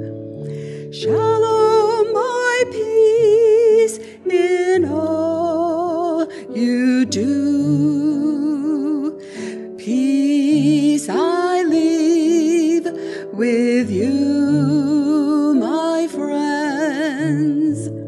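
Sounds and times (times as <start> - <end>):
woman singing a hymn: 0.8 - 18.0.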